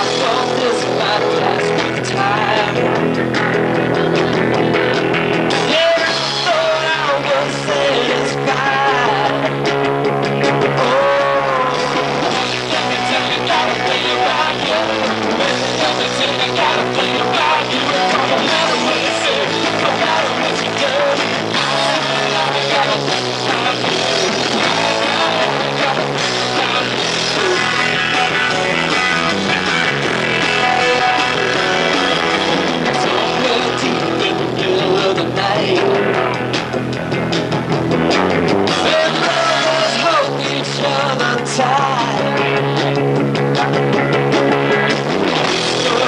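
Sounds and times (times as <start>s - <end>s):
live rock band playing: 0.0s - 46.0s.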